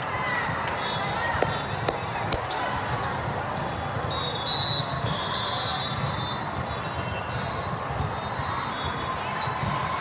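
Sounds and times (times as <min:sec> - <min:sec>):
crowd chatter: 0:00.0 - 0:10.0
volleyballs thudding on courts: 0:01.3 - 0:04.2.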